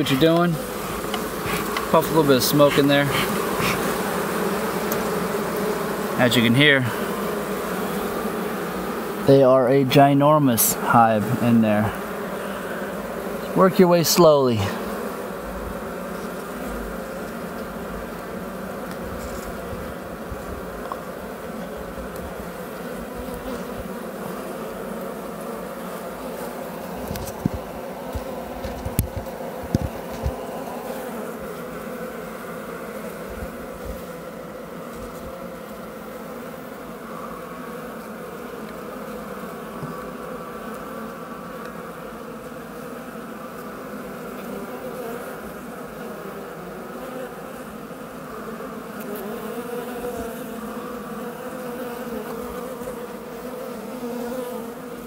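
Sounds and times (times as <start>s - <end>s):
honey bees buzzing: 0.0s - 55.0s.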